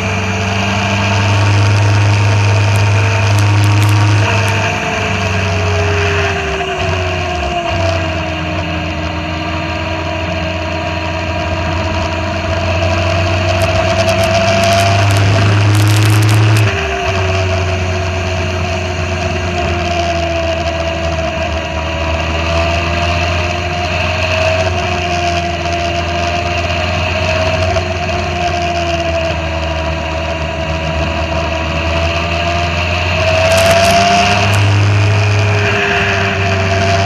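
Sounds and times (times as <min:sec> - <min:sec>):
motorcycle engine cruising: 0:00.0 - 0:37.0
wind and road noise: 0:00.0 - 0:37.0.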